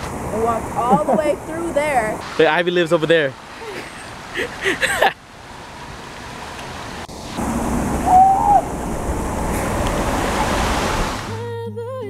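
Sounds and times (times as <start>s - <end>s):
water rushing over rocks: 0.0s - 11.4s
wavering pitched call: 8.0s - 9.1s.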